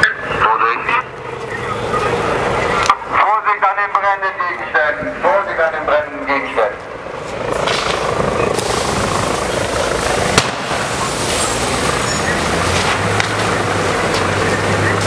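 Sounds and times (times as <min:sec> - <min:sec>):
heavy vehicle engines rumbling: 0:00.0 - 0:15.0
sharp crack: 0:09.6 - 0:11.8, 0:12.7 - 0:14.3.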